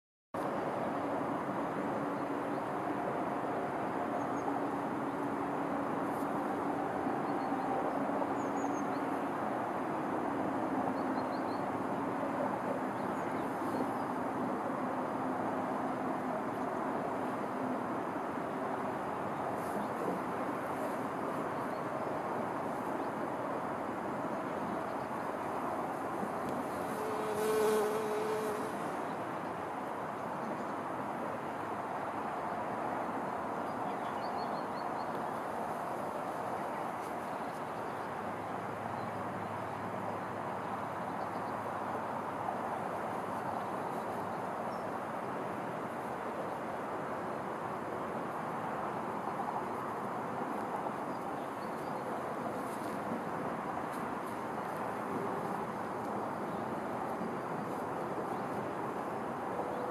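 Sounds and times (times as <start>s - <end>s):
distant traffic drone: 0.4s - 59.9s
outdoor background hiss: 0.4s - 59.9s
insect buzzing past: 26.2s - 29.0s.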